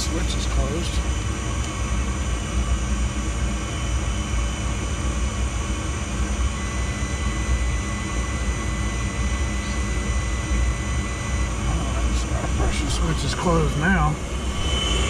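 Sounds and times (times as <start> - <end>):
motor humming: 7.0 - 15.0.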